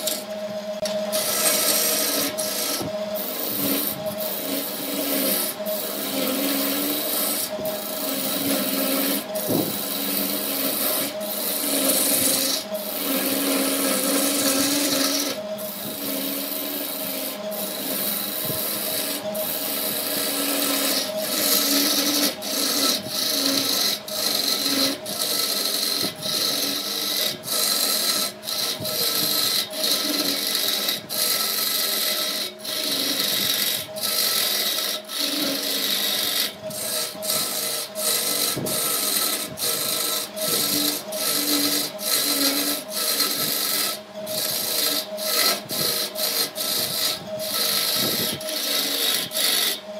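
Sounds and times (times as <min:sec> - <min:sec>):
lathe humming: 0:00.0 - 0:49.9
turning tool scraping wood: 0:00.0 - 0:49.9.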